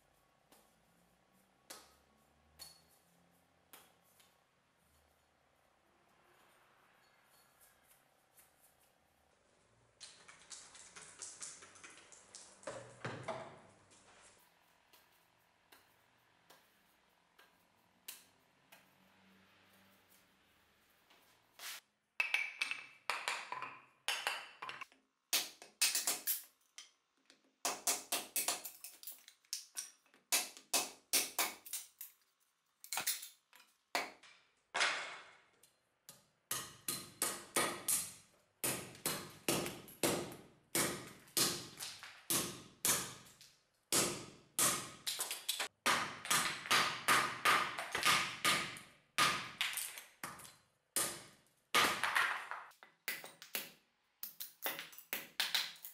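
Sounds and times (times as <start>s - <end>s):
hatchet chopping wood: 36.5s - 50.4s, 51.0s - 53.7s.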